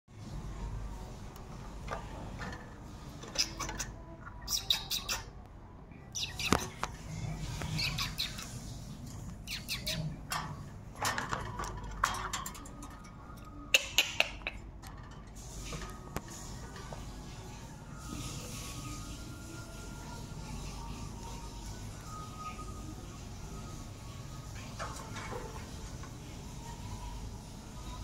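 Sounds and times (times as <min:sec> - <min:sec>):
parakeets squawking and chirping: 0:02.9 - 0:05.4, 0:06.0 - 0:17.8.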